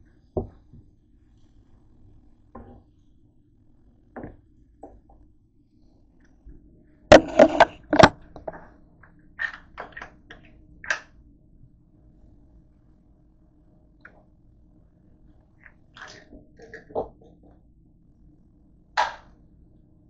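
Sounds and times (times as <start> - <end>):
kitchen items knocking and clattering: 7.1 - 8.6.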